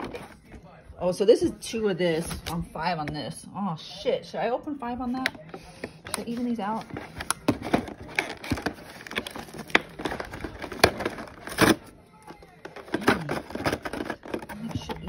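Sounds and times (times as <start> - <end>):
cardboard clicking and crackling: 6.0 - 15.0.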